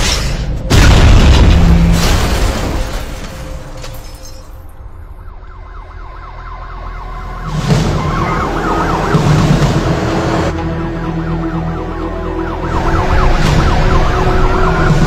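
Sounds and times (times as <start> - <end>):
sirens wailing: 4.8 - 15.0.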